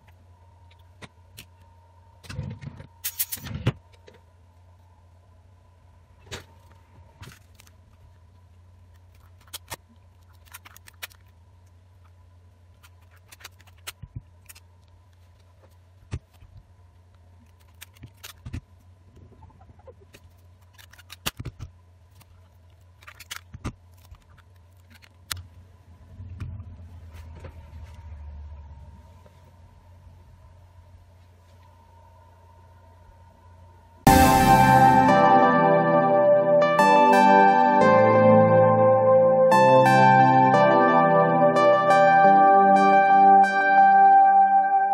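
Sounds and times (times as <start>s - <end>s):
steady low hum: 25.4s - 44.9s.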